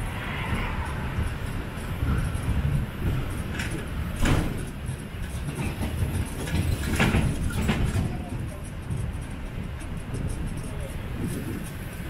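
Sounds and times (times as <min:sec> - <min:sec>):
road train rumbling: 0:00.0 - 0:12.0
carriage knocks and rattles: 0:02.3 - 0:11.8.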